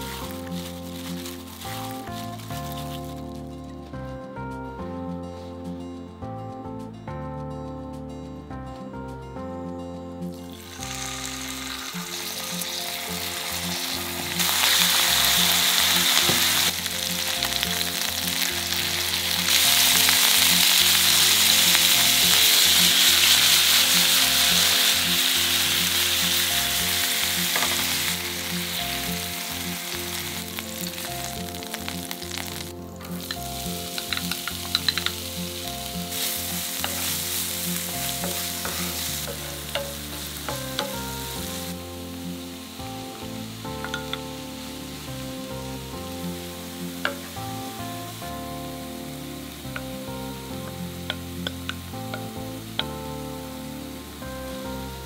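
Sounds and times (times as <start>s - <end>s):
chicken sizzling in oil: 0.0s - 3.4s, 10.4s - 55.0s
onion sizzling: 0.0s - 3.9s, 10.3s - 55.0s
wooden spoon clicking on pan: 33.2s - 35.2s, 43.8s - 44.3s.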